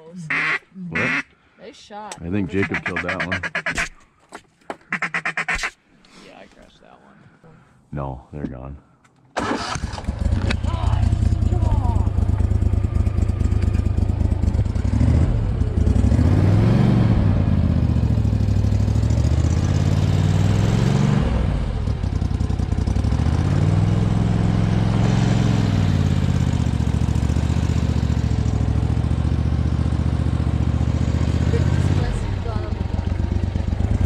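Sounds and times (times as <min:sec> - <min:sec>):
boat motor revving: 0:02.3 - 0:03.8, 0:09.4 - 0:34.0.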